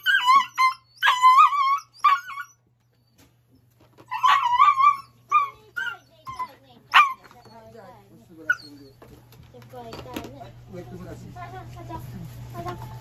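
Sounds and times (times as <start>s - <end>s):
dog whining: 0.0s - 9.1s.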